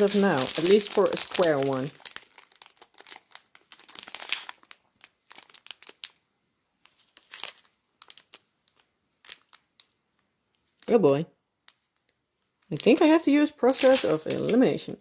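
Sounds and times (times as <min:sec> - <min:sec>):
plastic zip bags crinkling: 0:00.0 - 0:06.2, 0:06.8 - 0:10.0, 0:12.6 - 0:14.6.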